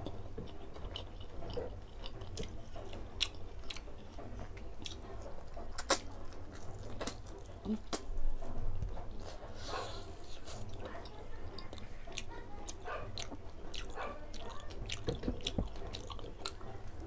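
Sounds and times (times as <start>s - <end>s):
person chewing: 0.0s - 8.0s, 9.1s - 17.0s.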